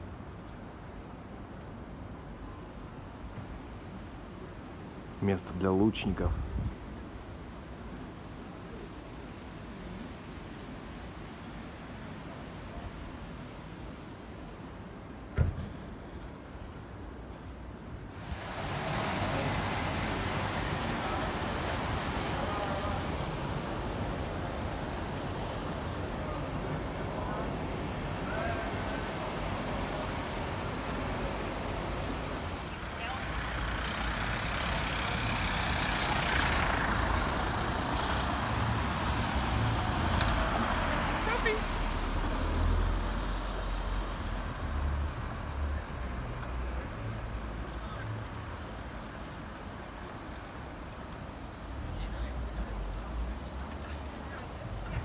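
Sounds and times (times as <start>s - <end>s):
traffic hum: 0.0s - 55.0s
wind hiss on microphone: 6.1s - 7.1s, 18.0s - 32.7s
thump: 15.3s - 15.8s
cars passing close by: 18.1s - 55.0s.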